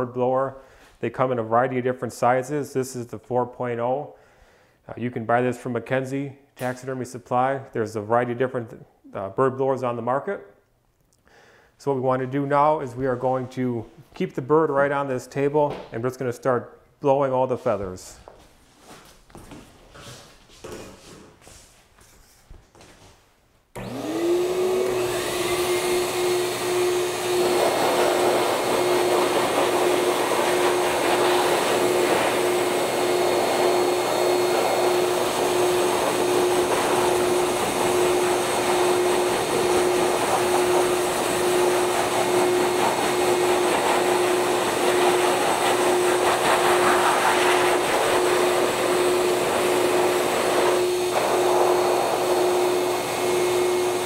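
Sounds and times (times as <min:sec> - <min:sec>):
blower motor whining: 0:23.8 - 0:54.0.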